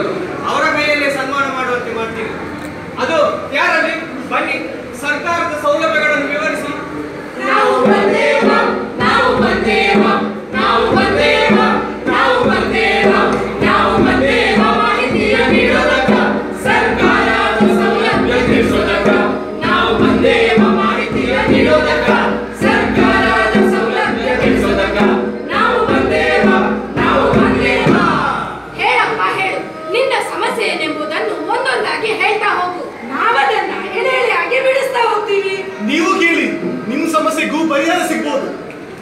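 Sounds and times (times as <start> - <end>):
group singing in unison: 7.1 - 28.8.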